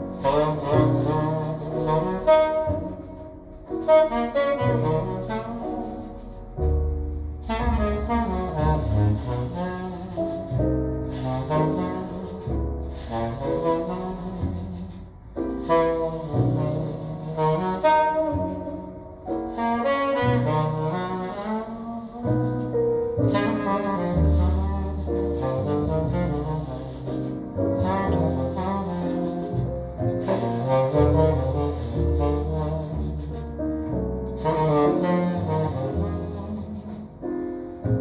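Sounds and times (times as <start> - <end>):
jazz with wind instrument lead: 0.0 - 38.0
walking bass line: 0.0 - 38.0.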